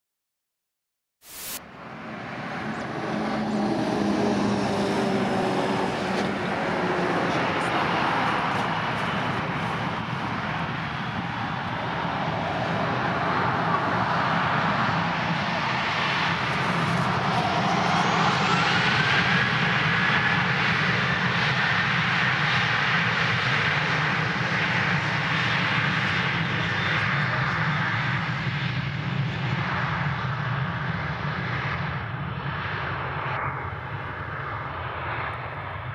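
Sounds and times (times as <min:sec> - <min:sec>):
jet engines running: 0:01.2 - 0:35.9
rising engine whine: 0:01.3 - 0:22.0.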